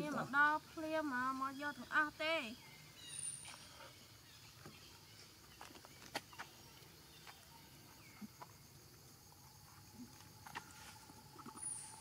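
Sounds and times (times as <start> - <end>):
monkeys eating clicks and smacks: 9.6 - 11.8.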